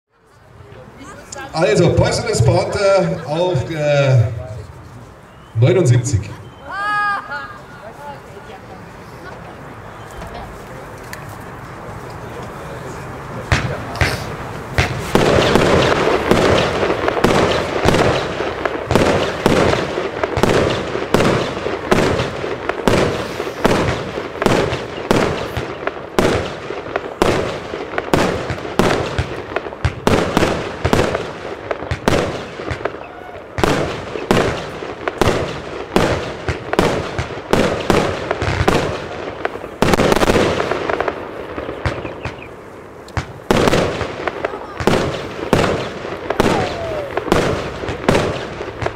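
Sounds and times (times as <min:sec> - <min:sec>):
crackling firework stars: 0:00.2 - 0:48.9
firework cake firing shots: 0:13.4 - 0:42.5, 0:43.1 - 0:48.9.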